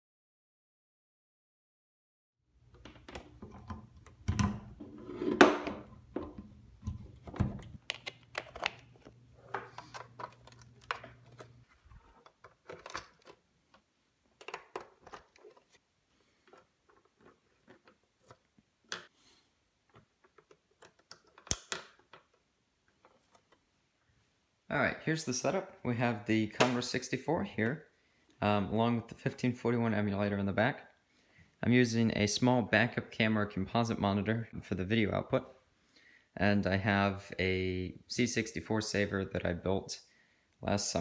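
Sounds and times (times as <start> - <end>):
plugs clicking and scraping: 2.7 - 15.8, 16.4 - 19.1, 19.9 - 23.6.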